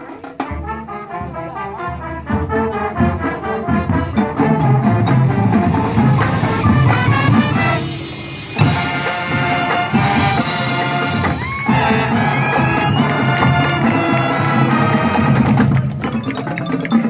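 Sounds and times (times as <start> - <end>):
drums: 0.0 - 17.0
marching band playing: 0.0 - 17.0.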